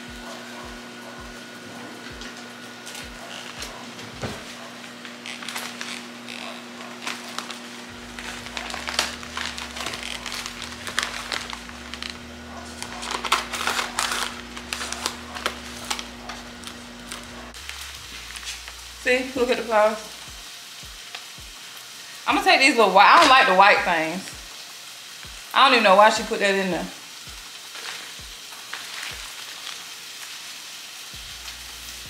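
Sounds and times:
paper wrapping crinkling: 0:00.0 - 0:20.3, 0:27.1 - 0:32.0
scissors snipping paper: 0:04.6 - 0:17.6.

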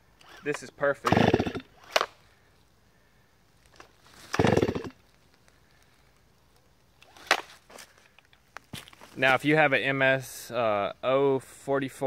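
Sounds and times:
chainsaw recoil starter whirr: 0:00.2 - 0:02.1, 0:04.2 - 0:05.0.

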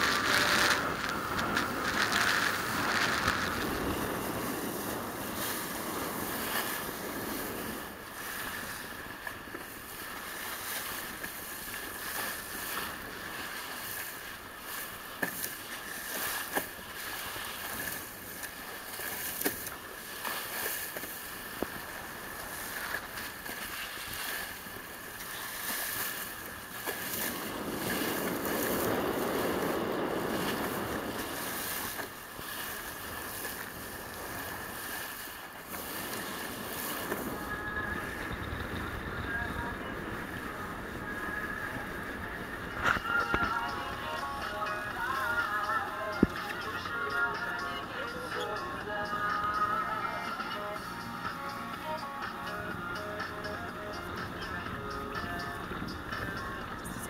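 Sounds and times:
wind buffeting microphone: 0:00.0 - 0:14.8, 0:21.4 - 0:45.1
sea water rushing and splashing: 0:00.0 - 0:57.0.

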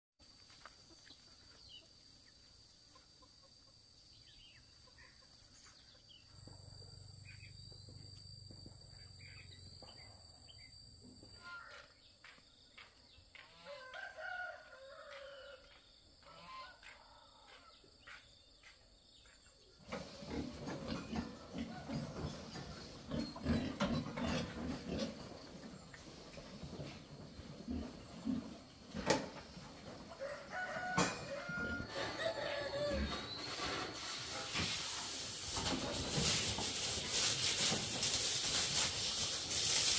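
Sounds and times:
rooster crowing: 0:13.6 - 0:15.8, 0:30.1 - 0:33.3
pigs grunting and feeding: 0:19.8 - 0:29.2.

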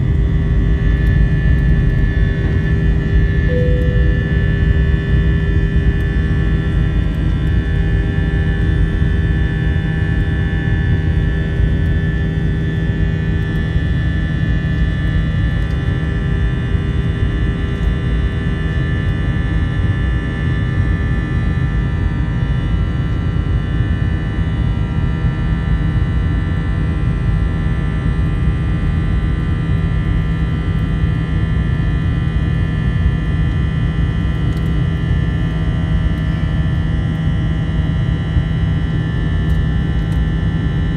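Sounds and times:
jet engines rumbling and whining: 0:00.0 - 0:27.2.

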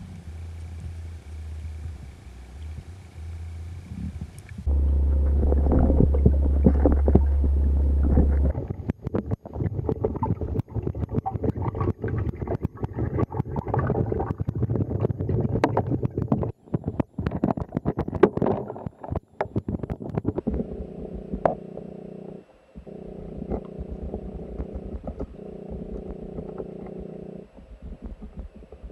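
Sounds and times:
gurgling water: 0:00.0 - 0:28.9
steady low hum: 0:00.0 - 0:28.9
fish feeding clicks and snaps: 0:05.4 - 0:20.4.

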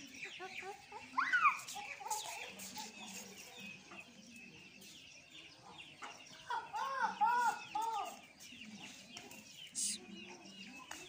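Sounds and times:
chickens clucking: 0:00.0 - 0:11.0
high chirping: 0:09.7 - 0:10.0.

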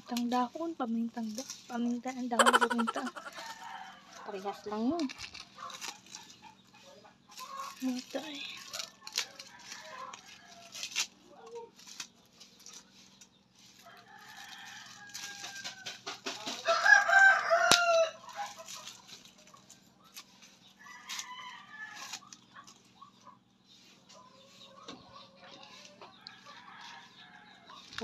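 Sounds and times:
rooster crowing: 0:02.4 - 0:04.3, 0:16.6 - 0:18.6.

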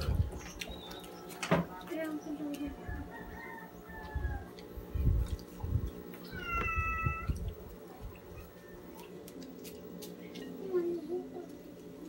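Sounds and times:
cat meowing: 0:06.2 - 0:07.4.

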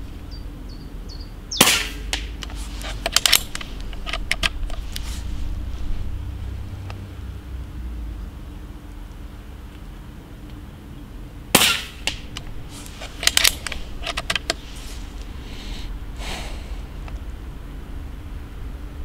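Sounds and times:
air rifle shot: 0:01.6 - 0:02.4, 0:11.5 - 0:12.4
short metallic clicks: 0:01.6 - 0:04.8, 0:11.9 - 0:14.6
soft rustling swishes: 0:01.9 - 0:06.9, 0:11.9 - 0:17.0.

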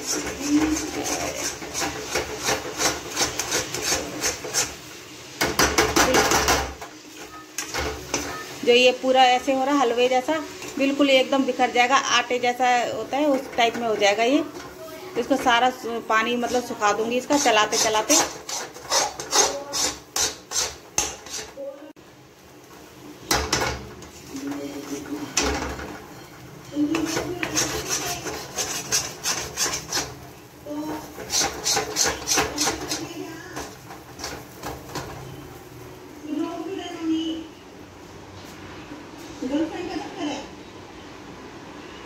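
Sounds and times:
spatula scraping a steel pan: 0:00.0 - 0:04.8, 0:16.2 - 0:21.6, 0:24.0 - 0:35.1.

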